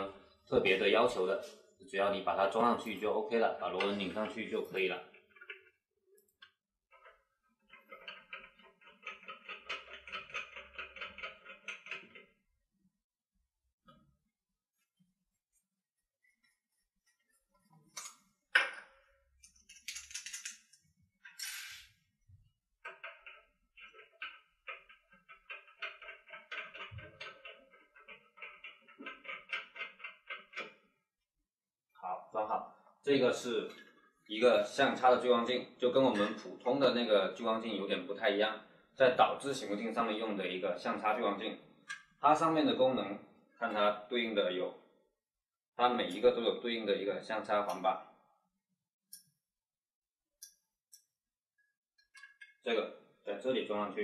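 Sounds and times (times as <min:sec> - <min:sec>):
faint rhythmic squeaking thread: 0:22.3 - 0:31.3.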